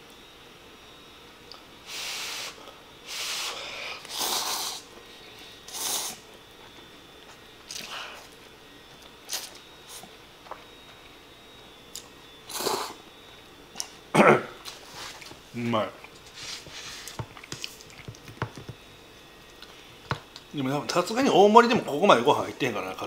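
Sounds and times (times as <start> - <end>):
person slurping noodles: 1.9 - 4.8, 5.7 - 6.2, 12.5 - 13.0.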